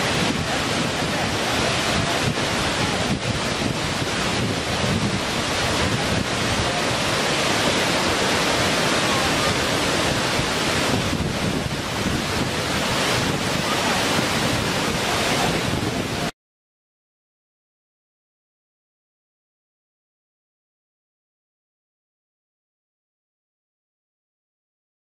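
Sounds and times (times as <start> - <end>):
waterfall rushing: 0.0 - 16.3.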